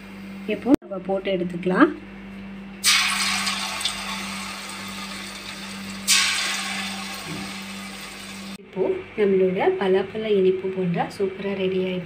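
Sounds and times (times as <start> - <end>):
batter sizzling in hot oil: 2.8 - 8.6.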